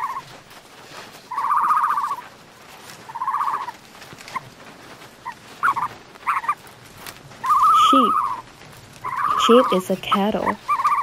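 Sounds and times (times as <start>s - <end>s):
animal quavering call: 7.4s - 8.4s, 9.0s - 11.0s.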